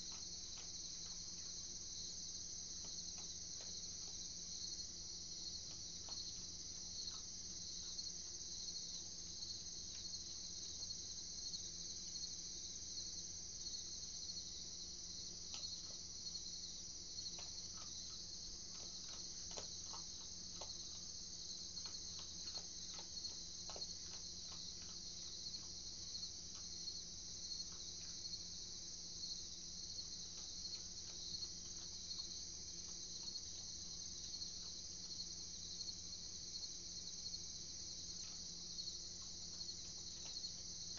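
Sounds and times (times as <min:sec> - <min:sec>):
night insects chorus: 0:00.0 - 0:40.9
faint clicks: 0:17.2 - 0:25.8.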